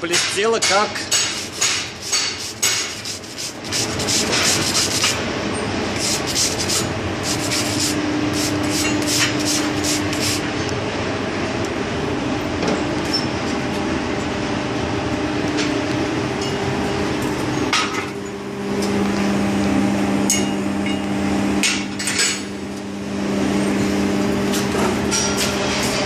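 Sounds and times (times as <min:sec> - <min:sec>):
steady background noise: 0:00.0 - 0:26.0
wire brush scrubbing metal: 0:01.1 - 0:05.2, 0:06.0 - 0:10.4.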